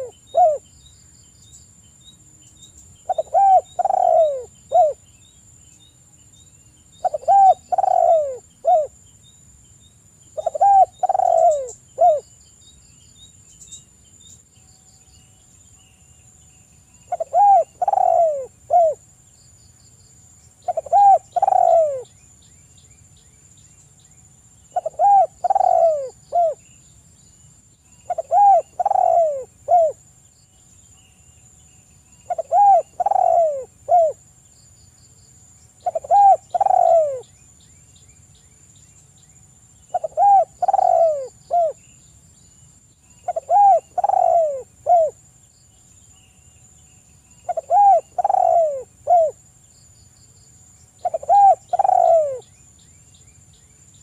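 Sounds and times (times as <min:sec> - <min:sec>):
dove cooing: 0:00.0 - 0:00.6, 0:03.0 - 0:05.0, 0:07.0 - 0:09.0, 0:10.4 - 0:12.2, 0:17.1 - 0:19.0, 0:20.6 - 0:22.1, 0:24.7 - 0:26.6, 0:28.0 - 0:30.0, 0:32.3 - 0:34.2, 0:35.8 - 0:37.2, 0:39.9 - 0:41.8, 0:43.2 - 0:45.2, 0:47.4 - 0:49.4, 0:51.0 - 0:52.4.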